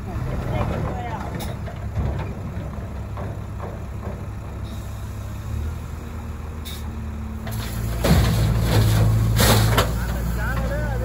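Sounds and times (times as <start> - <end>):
backhoe diesel engine under load: 0.0 - 11.0
sand tipped into steel truck body: 7.5 - 10.1.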